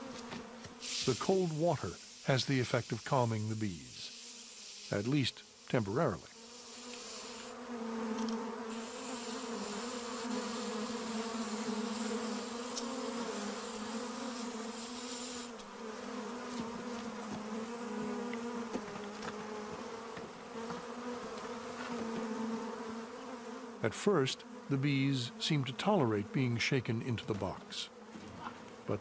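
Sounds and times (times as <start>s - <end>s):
bee swarm buzzing: 0.0s - 29.0s
high hiss: 0.8s - 7.6s, 8.7s - 15.6s.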